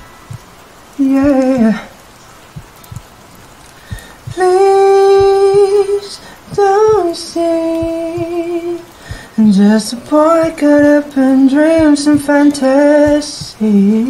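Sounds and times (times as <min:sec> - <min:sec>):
faint steady rain: 0:00.0 - 0:14.0
slow heartbeat thumping: 0:00.2 - 0:00.6, 0:01.2 - 0:01.8, 0:02.5 - 0:03.2, 0:03.8 - 0:13.8
man singing sustained notes: 0:01.0 - 0:02.0, 0:04.3 - 0:14.0.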